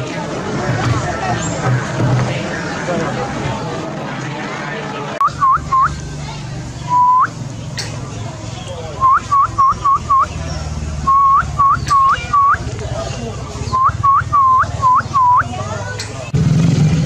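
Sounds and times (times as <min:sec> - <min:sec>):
short whistled calls: 0:05.2 - 0:06.0, 0:06.8 - 0:07.9, 0:09.0 - 0:12.7, 0:13.7 - 0:15.6.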